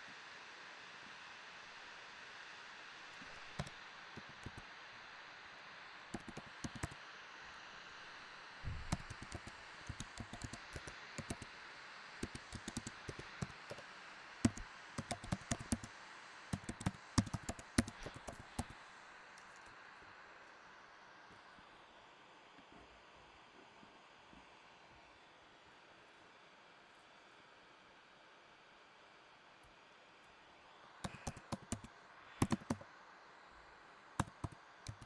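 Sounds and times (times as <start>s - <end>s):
faint hiss: 0.0s - 35.0s
computer keyboard typing: 3.2s - 4.6s, 6.1s - 7.0s, 8.8s - 11.5s, 12.2s - 13.8s, 14.4s - 15.9s, 16.5s - 18.8s, 31.0s - 32.8s, 34.2s - 35.0s.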